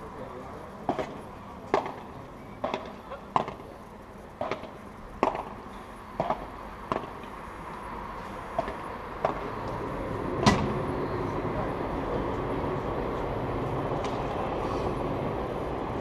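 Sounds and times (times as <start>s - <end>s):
racket hitting ball: 4.4s - 5.6s, 8.6s - 9.5s.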